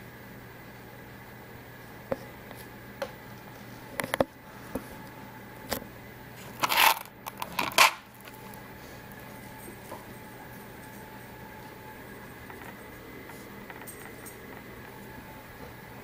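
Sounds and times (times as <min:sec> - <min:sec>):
ball bearings rattling in plastic tub: 0:06.6 - 0:08.0.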